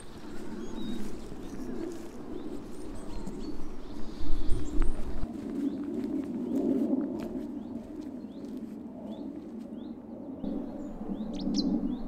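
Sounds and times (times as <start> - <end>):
small birds chirping: 0.0 - 5.9, 7.4 - 12.0
wind rumbling on microphone: 0.0 - 12.0.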